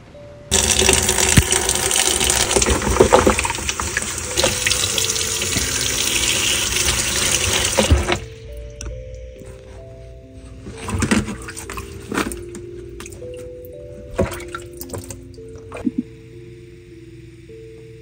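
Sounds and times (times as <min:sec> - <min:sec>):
tap water splashing into basin: 0:00.5 - 0:08.2, 0:14.2 - 0:16.0.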